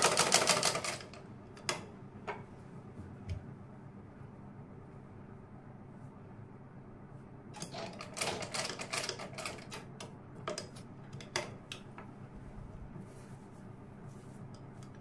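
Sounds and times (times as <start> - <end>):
sewing machine clattering: 0.0 - 1.2, 7.6 - 9.9.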